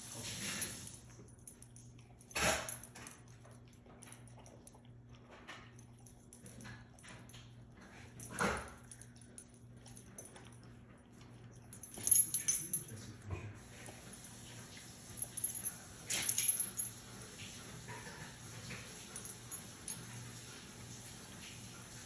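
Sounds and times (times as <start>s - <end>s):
puppy chewing: 1.0s - 11.8s.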